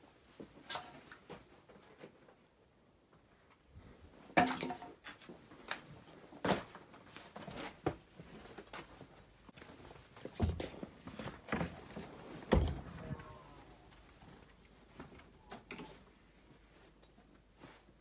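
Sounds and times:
footstep knocks and scuffs: 0:06.4 - 0:15.3.

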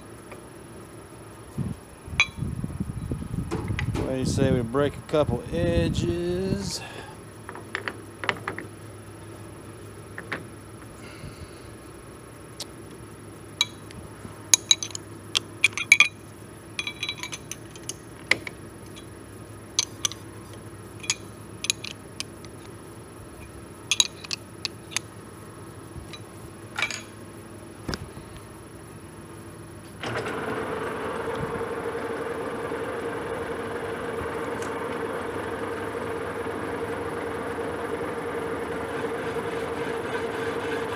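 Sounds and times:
steady low hum: 0:00.0 - 0:40.9
metal tool holders clinking: 0:14.6 - 0:16.2, 0:16.8 - 0:18.0, 0:21.0 - 0:22.0, 0:23.9 - 0:25.1, 0:26.1 - 0:27.2.

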